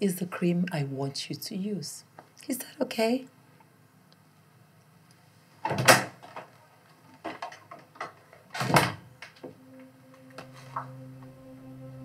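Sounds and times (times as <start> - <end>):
low music drone: 9.4 - 12.0.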